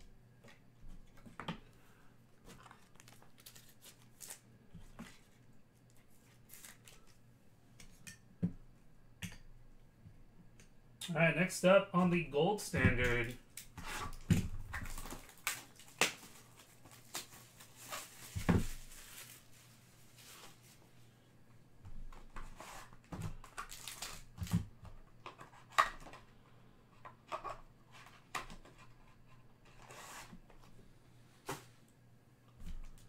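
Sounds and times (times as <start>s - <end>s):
foil pack crinkling: 2.5s - 4.4s, 6.2s - 7.2s, 14.8s - 20.5s, 23.5s - 24.5s.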